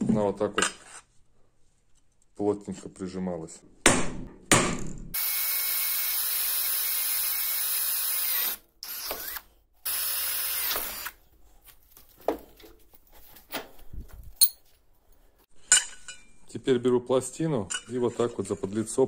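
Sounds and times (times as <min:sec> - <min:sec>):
electric drill boring through steel: 0:05.2 - 0:11.2.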